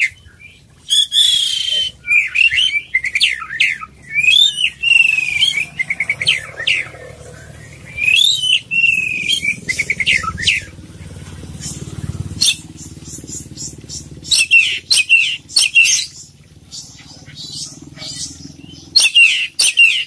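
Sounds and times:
bird singing whistled phrases: 0.0s - 6.9s, 7.6s - 10.7s, 13.6s - 16.2s.

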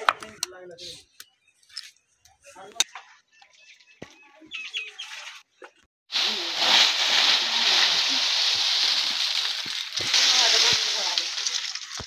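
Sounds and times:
bird chirps: 3.1s - 5.4s
dry leaves rustling and crackling: 6.1s - 12.0s.

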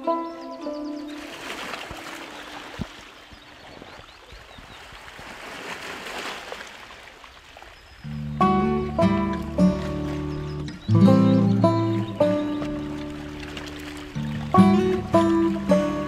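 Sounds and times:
calm instrumental music: 0.0s - 2.9s, 8.0s - 16.0s
stream water gurgling: 1.0s - 10.9s, 11.6s - 16.0s.

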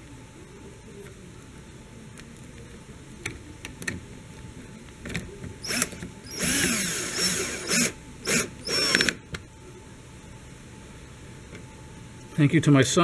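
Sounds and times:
cordless drill motor bursts: 5.6s - 9.2s.

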